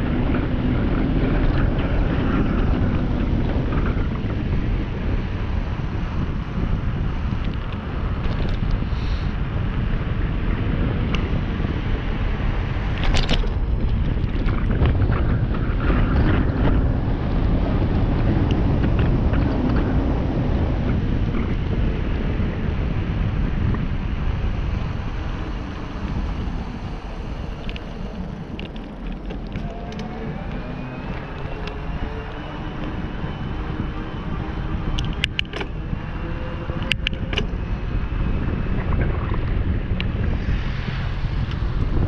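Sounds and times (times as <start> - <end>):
bike tyres rushing on asphalt: 0.0 - 42.0
wind buffeting microphone: 0.0 - 42.0.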